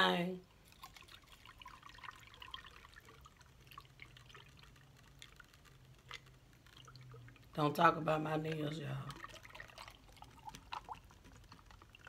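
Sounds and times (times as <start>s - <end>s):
liquid trickling over ice: 0.4s - 12.0s.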